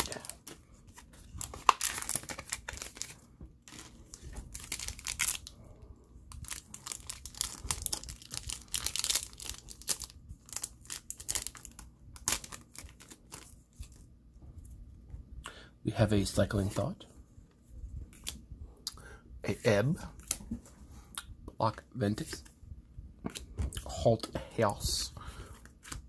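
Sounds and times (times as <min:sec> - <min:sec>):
wrapper tearing and crinkling: 0:01.2 - 0:05.5, 0:06.4 - 0:14.0.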